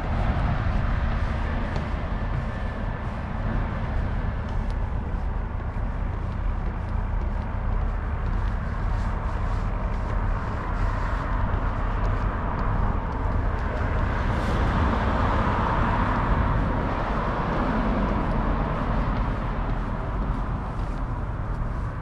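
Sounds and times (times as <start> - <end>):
low traffic rumble: 0.0 - 22.0
cars passing: 10.6 - 21.9.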